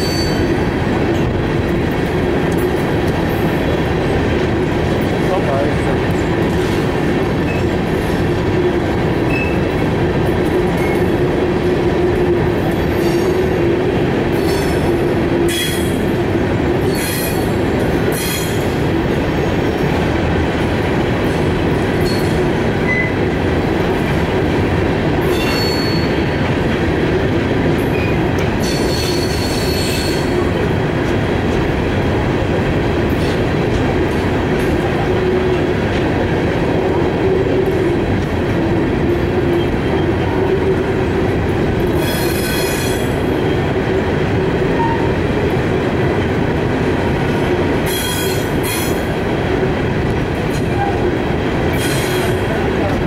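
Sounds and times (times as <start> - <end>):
train wheels rumbling on rail: 0.0 - 53.0
high-pitched wheel squeals: 25.3 - 26.2.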